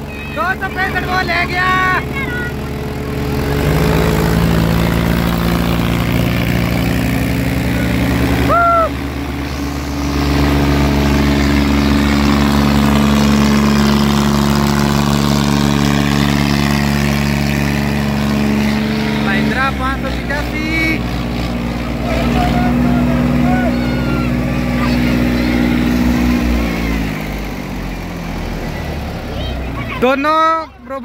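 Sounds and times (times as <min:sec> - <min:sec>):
person calling: 0:00.0 - 0:02.7, 0:07.8 - 0:13.4, 0:21.8 - 0:26.7
tractor diesel engines under load: 0:00.0 - 0:31.0.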